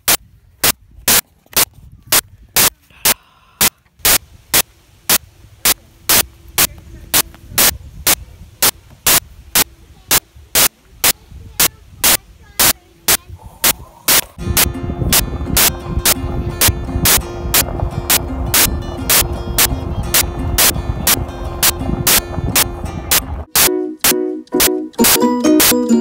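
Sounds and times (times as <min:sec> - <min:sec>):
sharp static clicks: 0:00.0 - 0:26.0
low rumble and hiss: 0:02.4 - 0:23.5
music: 0:14.4 - 0:26.0.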